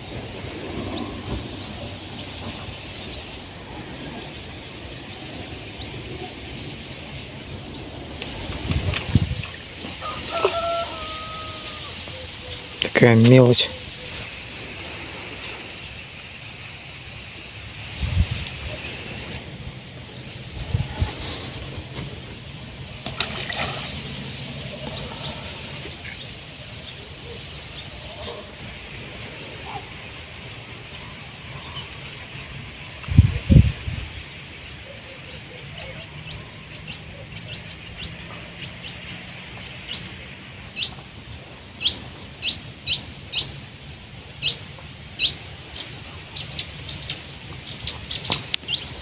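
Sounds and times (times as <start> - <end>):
groundbait splashing into water: 23.0 - 24.2.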